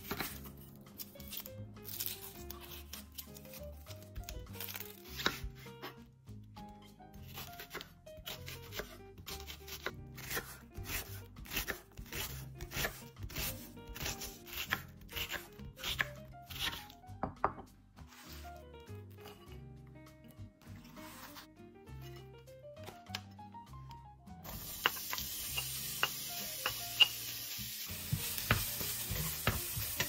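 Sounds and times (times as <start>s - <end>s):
knife chopping on cutting board: 0.0s - 0.5s, 4.0s - 6.0s, 7.2s - 18.5s, 20.6s - 22.2s, 27.9s - 30.0s
soft background music: 0.0s - 30.0s.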